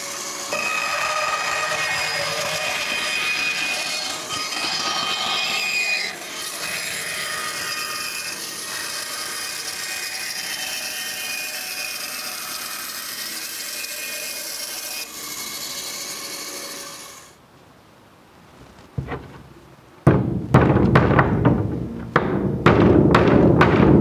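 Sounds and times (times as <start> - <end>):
bandsaw blade whining through wood: 0.0 - 17.4.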